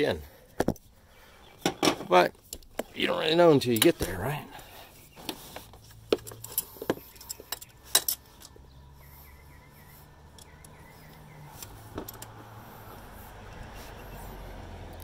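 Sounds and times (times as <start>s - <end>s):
tools clinking against metal: 6.1s - 8.6s.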